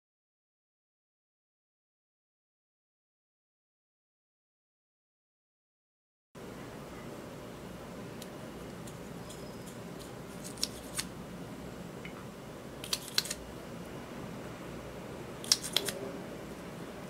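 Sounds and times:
low background hum: 6.4s - 17.0s.

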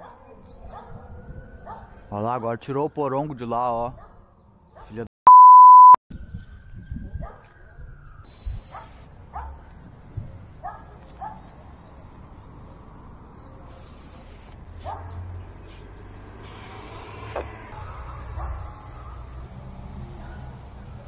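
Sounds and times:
dog barking: 0.0s - 1.9s, 4.8s - 5.0s, 8.7s - 9.7s, 10.6s - 11.5s, 14.8s - 15.2s, 18.2s - 18.8s
spray-paint can hissing: 8.3s - 9.1s, 13.7s - 15.0s, 15.6s - 20.0s.

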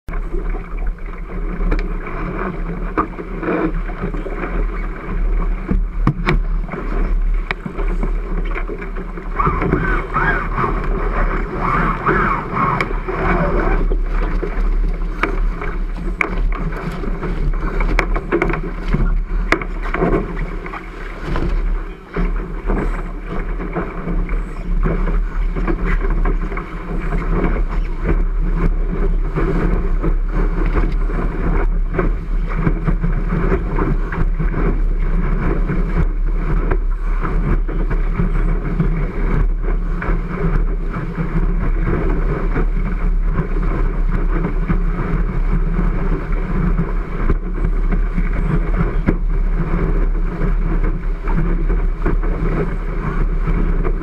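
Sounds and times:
water rushing along hull: 0.1s - 54.0s
wind buffeting camera: 0.1s - 54.0s
sharp knocks from hull and rigging: 5.6s - 40.7s.

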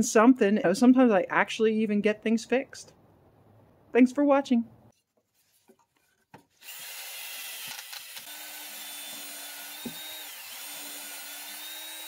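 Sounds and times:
cordless drill whining: 6.6s - 12.0s.

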